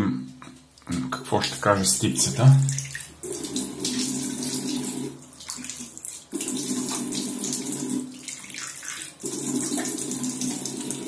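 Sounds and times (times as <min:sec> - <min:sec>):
tap water running into sink: 0:02.4 - 0:11.0.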